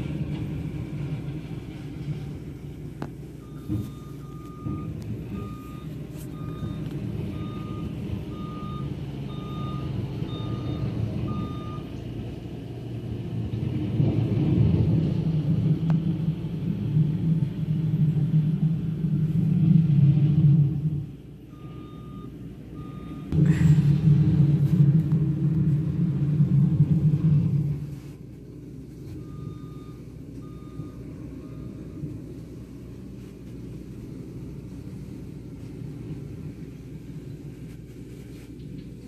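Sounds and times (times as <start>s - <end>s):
diesel engine working hard: 0.0s - 37.7s
backup alarm beeping: 3.4s - 12.0s, 21.5s - 23.6s, 29.2s - 32.3s.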